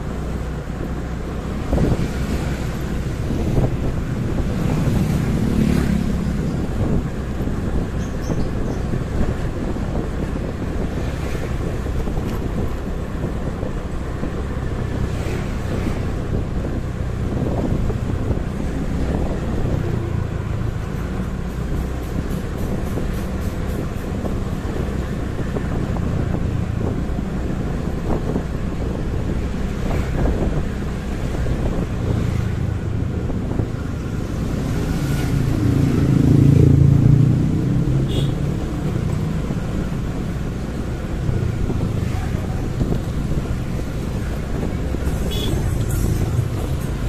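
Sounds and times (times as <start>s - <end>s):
motorcycle engine and road rumble: 0.0s - 47.0s
louder passing engine: 33.9s - 39.4s.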